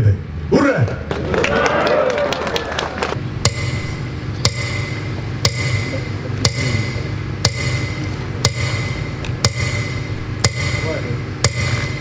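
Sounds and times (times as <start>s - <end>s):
low steady hum: 2.0s - 12.0s
metronome ticking over loudspeakers: 3.4s - 12.0s.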